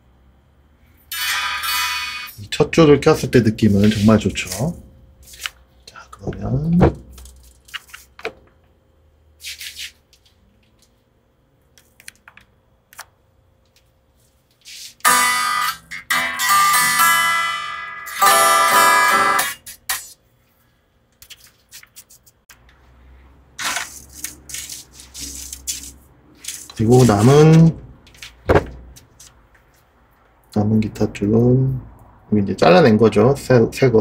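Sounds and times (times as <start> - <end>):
electric guitar ringing: 1.1 - 2.4, 15.0 - 19.7.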